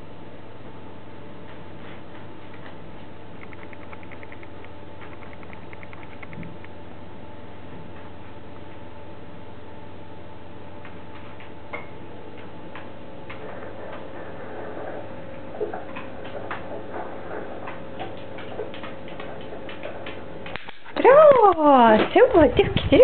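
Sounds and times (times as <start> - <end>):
steady low hum: 0.0 - 23.0
dog claws clicking on hard floor: 3.4 - 6.6, 17.6 - 22.2.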